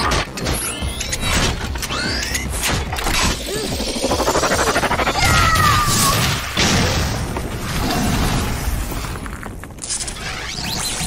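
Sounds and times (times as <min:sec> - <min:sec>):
blaster zaps: 0:02.8 - 0:06.9.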